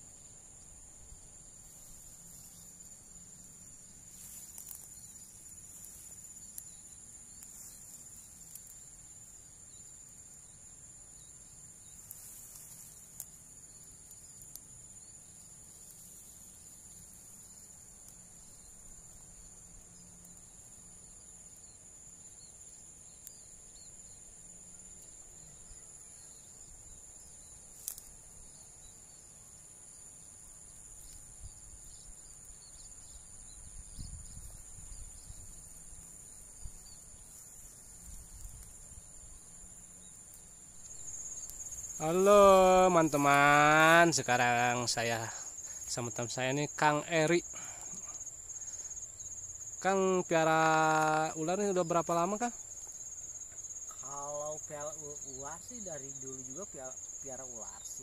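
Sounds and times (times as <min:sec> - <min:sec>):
insects singing: 0:00.0 - 0:58.0
faint sharp clicks: 0:12.0 - 0:13.4, 0:27.8 - 0:28.2.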